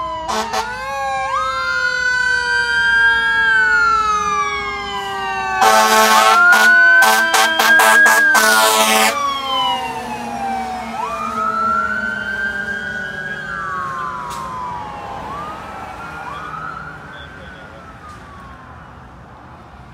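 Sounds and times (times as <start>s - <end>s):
fire engine siren wailing: 0.0s - 19.9s
loud horn blast: 0.3s - 0.8s, 5.6s - 9.2s.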